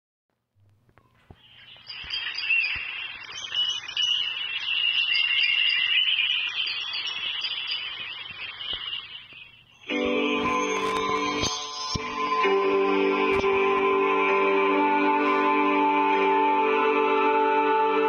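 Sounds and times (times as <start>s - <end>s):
high chirping calls: 1.2s - 12.4s
high trill: 1.4s - 15.6s.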